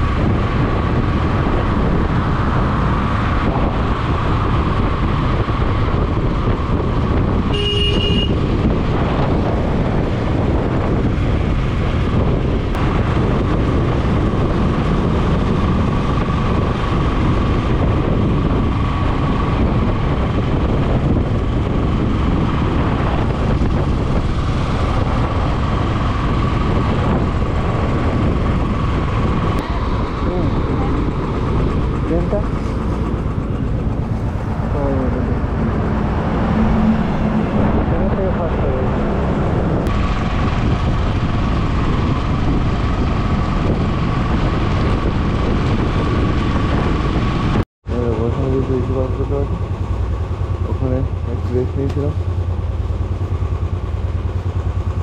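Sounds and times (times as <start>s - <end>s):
motorcycle road and wind noise: 0.0s - 55.0s
vehicle horn toot: 7.5s - 8.5s.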